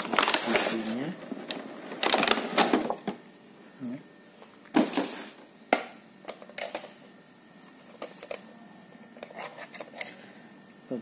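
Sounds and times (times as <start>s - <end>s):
packaging rustling: 0.0s - 3.2s.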